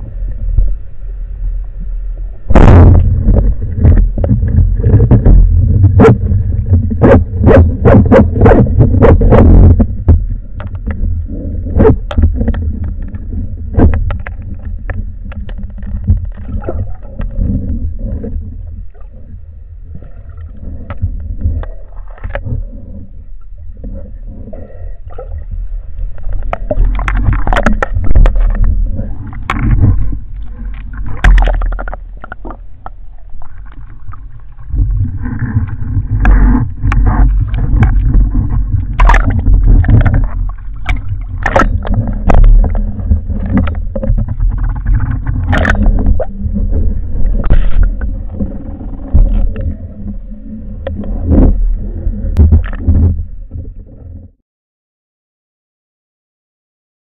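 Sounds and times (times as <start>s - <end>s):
muffled underwater rumble: 0.0s - 54.4s.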